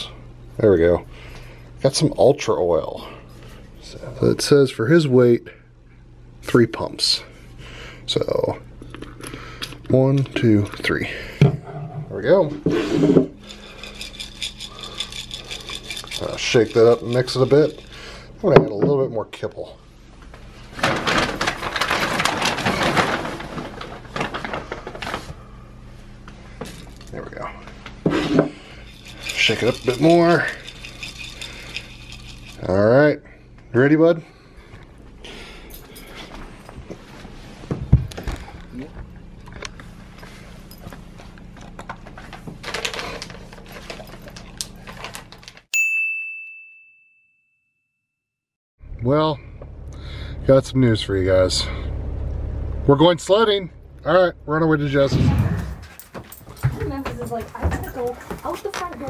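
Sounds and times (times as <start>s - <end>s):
dry kibble poured into bowl: 13.5s - 17.9s, 29.0s - 32.7s
dog crunching dry kibble: 41.6s - 45.6s.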